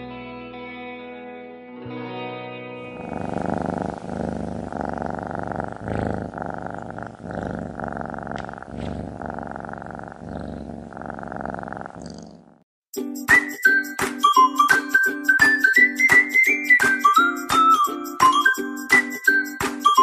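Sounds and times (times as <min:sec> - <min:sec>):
cat purring: 0:02.9 - 0:12.6
background music: 0:13.0 - 0:20.0.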